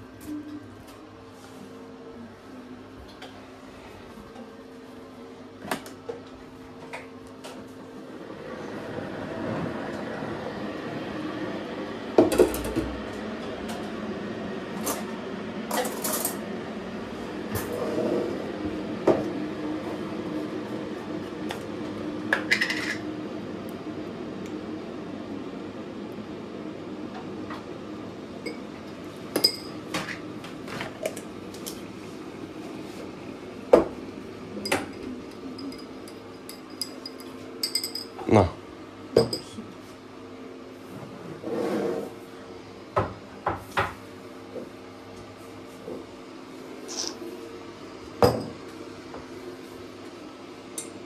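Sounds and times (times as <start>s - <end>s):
metal spoon clinking glassware: 34.6s - 38.2s
spoon stirring in glass: 34.6s - 38.2s
spoon scraping glass jar: 46.9s - 47.2s.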